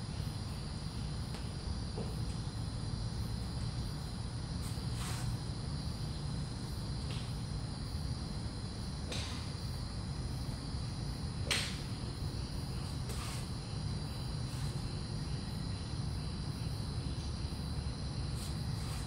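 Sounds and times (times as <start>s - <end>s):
insects chirring: 0.0s - 19.0s
steady low hum: 0.0s - 19.0s
golf clubs striking balls: 9.0s - 9.6s, 11.4s - 12.1s.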